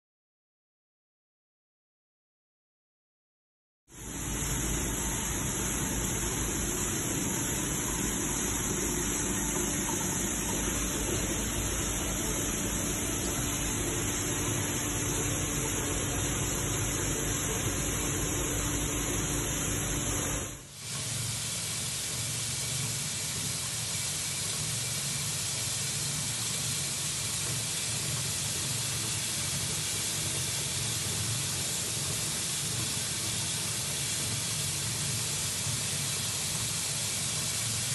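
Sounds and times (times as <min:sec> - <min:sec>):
machine hum: 0:04.0 - 0:20.7
grain pouring hiss: 0:04.0 - 0:22.4.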